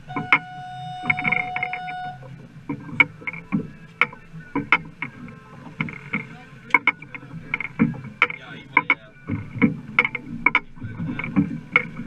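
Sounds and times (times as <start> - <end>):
knocks and slaps on boat: 0.0 - 12.0
electronic beep: 0.1 - 2.2.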